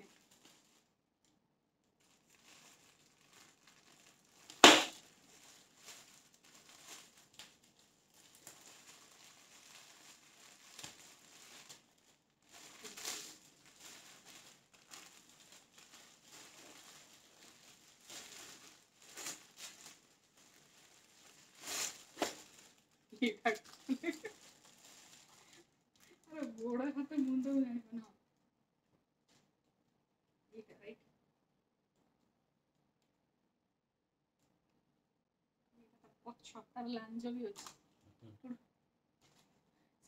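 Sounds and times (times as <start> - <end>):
plastic bags crinkling: 0.0 - 1.0, 2.0 - 27.6.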